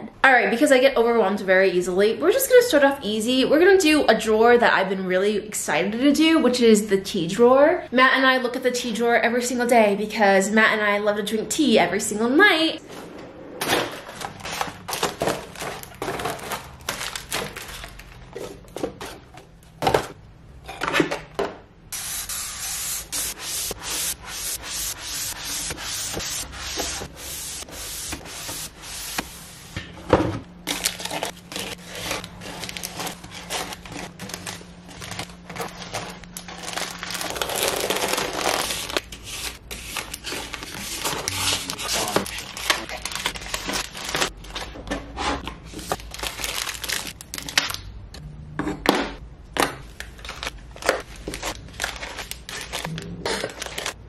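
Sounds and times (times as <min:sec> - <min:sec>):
boxes clattering in wooden drawer: 0:13.6 - 0:21.4.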